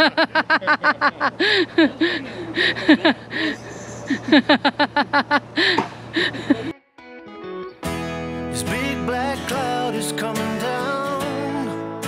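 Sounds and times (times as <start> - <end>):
person laughing hard: 0.0 - 6.7.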